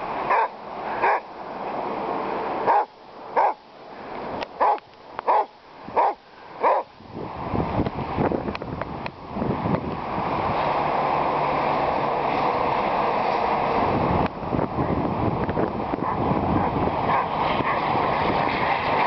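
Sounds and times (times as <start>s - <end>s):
wind rumbling: 0.0s - 19.0s
dog barking: 0.3s - 1.2s, 2.7s - 3.6s, 4.6s - 6.9s, 16.0s - 17.8s.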